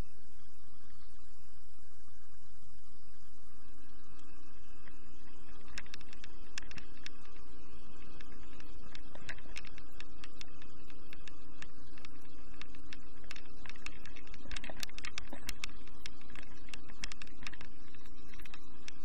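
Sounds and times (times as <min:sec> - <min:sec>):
sharp clicks and rattles: 0:05.6 - 0:07.4, 0:08.0 - 0:19.0.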